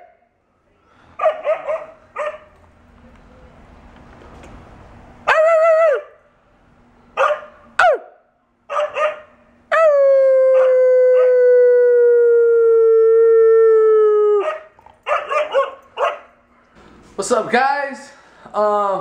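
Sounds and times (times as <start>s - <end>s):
dog yips: 1.2s - 2.4s, 14.4s - 16.2s
husky howling: 8.9s - 16.1s.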